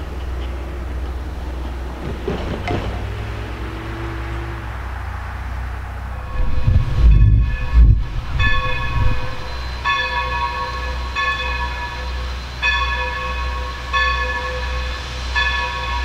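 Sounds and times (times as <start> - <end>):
low rumble: 0.0 - 10.4
locomotive bell ringing: 6.1 - 16.0.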